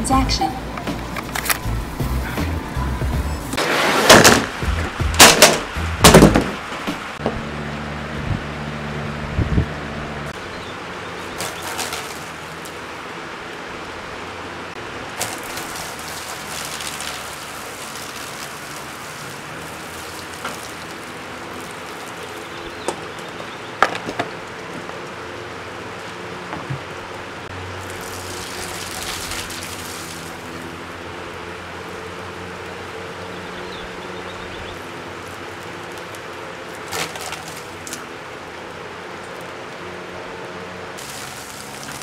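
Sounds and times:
box fan whirring: 0.0s - 42.0s
liquid spattering off fan blades: 3.6s - 7.3s, 11.2s - 13.8s, 14.8s - 25.2s, 25.9s - 33.0s, 34.7s - 39.6s, 40.9s - 42.0s.

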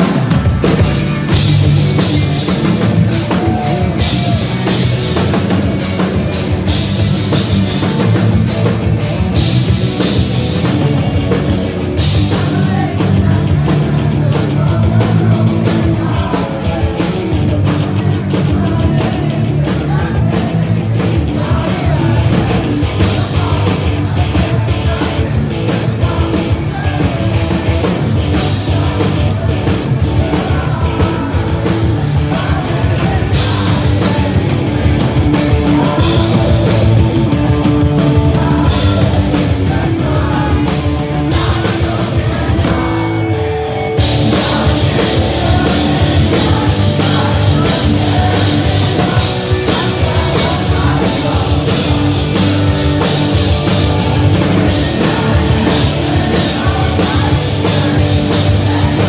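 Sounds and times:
bass guitar: 0.0s - 59.0s
drum kit: 0.0s - 59.0s
electric guitars: 0.0s - 59.0s
person singing into a microphone: 12.0s - 37.0s, 38.0s - 43.2s, 44.1s - 59.0s.

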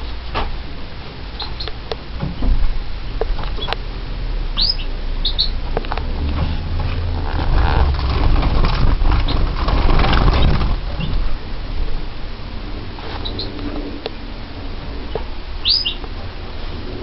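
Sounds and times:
low rumble: 2.1s - 17.0s
birds chirping: 4.6s - 5.7s, 13.2s - 13.8s, 15.6s - 16.7s
wings fluttering and rustling: 5.8s - 11.4s.

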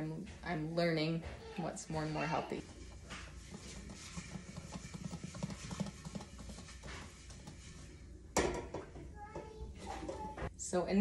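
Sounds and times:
metal pot clicking and rattling: 2.6s - 7.8s.

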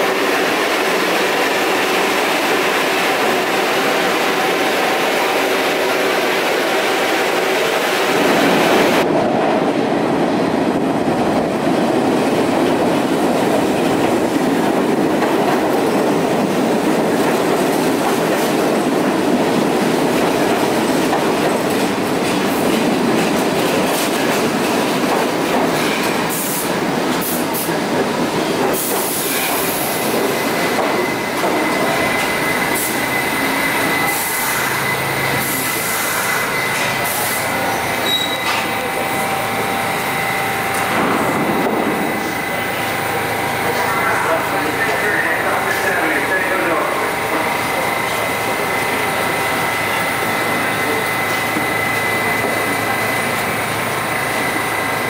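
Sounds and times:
subway train wheels rumbling and rattling: 0.0s - 55.0s
high wheel squeal: 30.4s - 40.8s.

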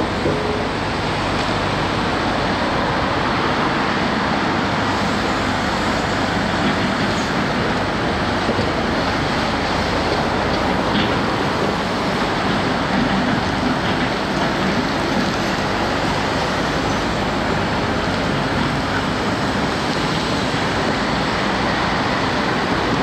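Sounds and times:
diesel machinery rumbling: 0.0s - 23.0s.

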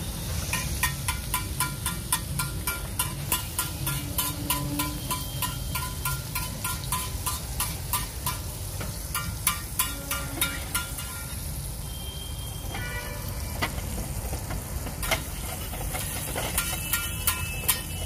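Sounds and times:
egg sizzling on griddle: 0.0s - 18.0s
metal spatula clicking on griddle: 0.5s - 11.3s, 15.0s - 18.0s.

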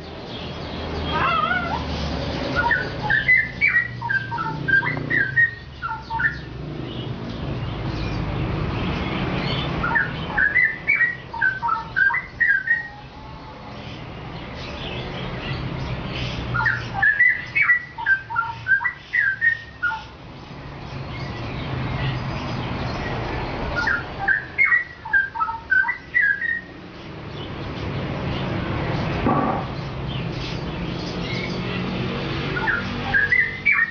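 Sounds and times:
bird whistled warbling: 2.5s - 6.5s, 9.8s - 13.0s, 16.5s - 20.1s, 23.8s - 26.7s, 32.6s - 33.9s.

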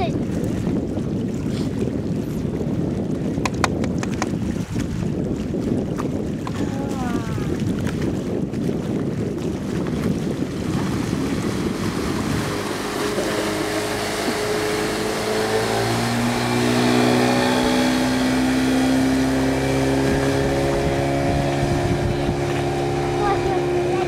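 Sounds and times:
outboard motor passing: 0.0s - 24.0s
wind buffeting microphone: 0.0s - 24.0s.

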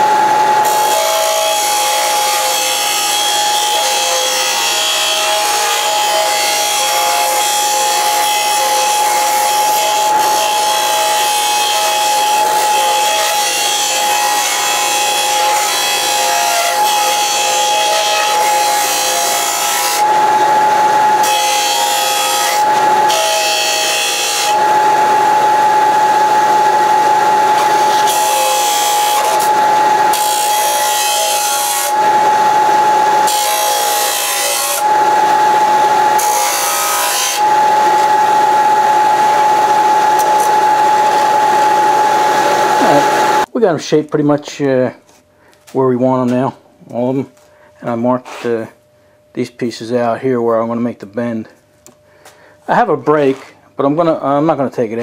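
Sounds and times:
disc sander whining: 0.0s - 43.5s.

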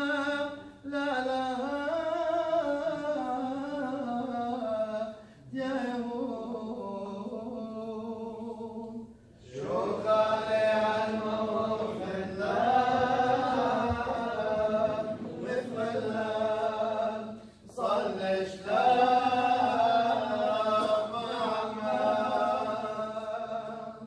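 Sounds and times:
voices chanting long notes: 9.4s - 17.2s.

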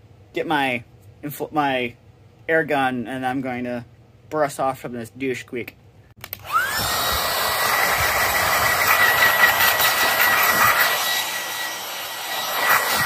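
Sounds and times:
electric blower whining: 6.2s - 13.0s.

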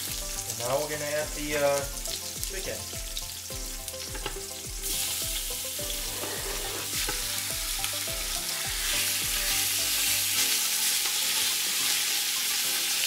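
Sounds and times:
meat sizzling in hot oil: 0.0s - 13.0s
wooden spatula stirring: 5.9s - 7.2s.

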